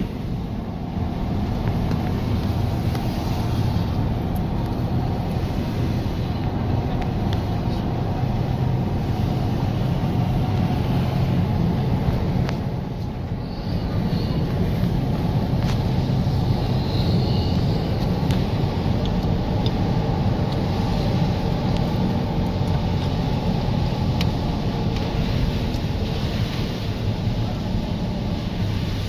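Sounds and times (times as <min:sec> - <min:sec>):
car engine and tyres rumbling: 0:00.0 - 0:29.0.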